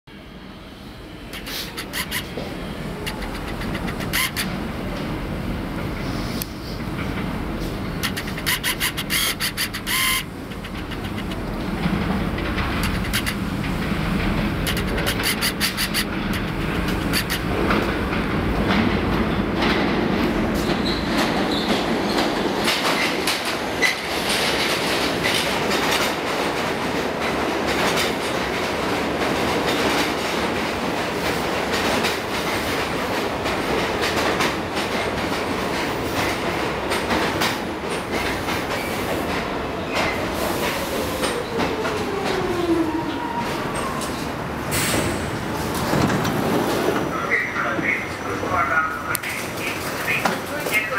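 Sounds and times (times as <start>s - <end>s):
subway train wheels clacking: 0.1s - 50.9s
train braking whine: 8.1s - 10.4s.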